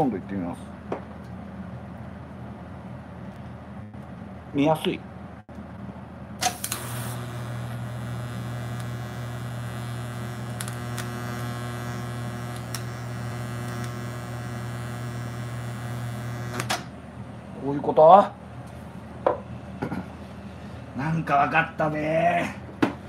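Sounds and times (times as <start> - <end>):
welding arc crackling hiss: 6.4 - 16.9
welding arc buzzing hum: 6.4 - 17.0.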